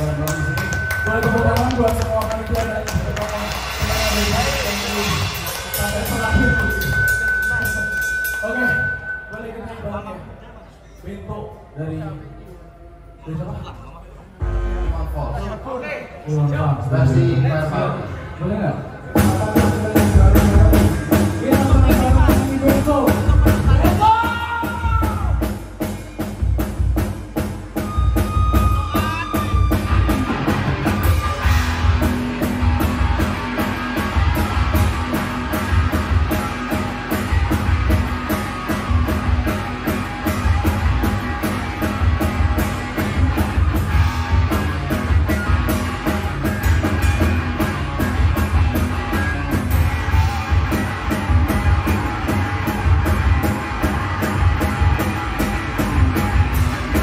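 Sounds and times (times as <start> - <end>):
drums keeping steady beat: 0.0 - 9.4, 19.1 - 57.0
live rock band playing: 0.0 - 9.4, 18.0 - 57.0.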